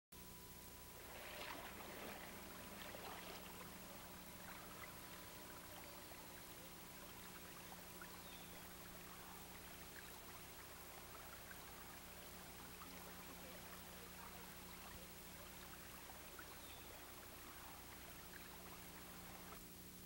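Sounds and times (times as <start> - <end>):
faint tape hiss: 0.2 - 20.0
low electrical hum: 0.2 - 20.0.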